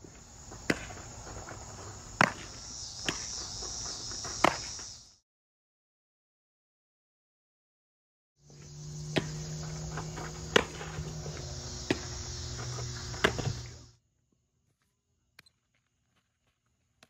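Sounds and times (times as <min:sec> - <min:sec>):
crickets chirping: 0:00.0 - 0:05.2, 0:08.4 - 0:13.9
low hum: 0:08.5 - 0:13.9.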